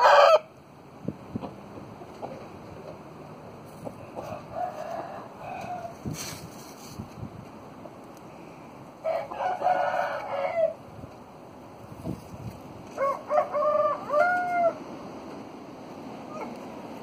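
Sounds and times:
roosters crowing: 0.0 - 0.6, 3.7 - 6.3, 9.0 - 11.0, 12.8 - 15.2.

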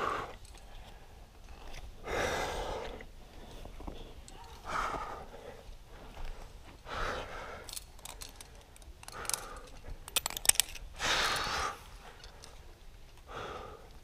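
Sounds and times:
man breathing heavily: 0.0 - 1.3, 2.0 - 3.9, 4.5 - 10.1, 10.9 - 14.0
sharp clicks and rattles: 7.7 - 10.9.

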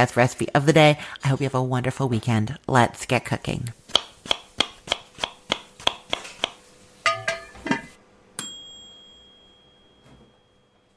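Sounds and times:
tapping beat: 4.0 - 7.3
bright bell-like ding: 8.4 - 10.9.

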